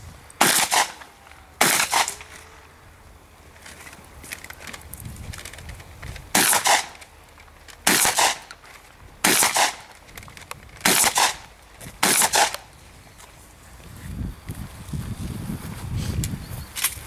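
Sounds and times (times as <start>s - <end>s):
shotgun shots: 0.4s - 2.2s, 6.3s - 7.0s, 7.8s - 8.5s, 9.2s - 9.9s, 10.8s - 12.6s.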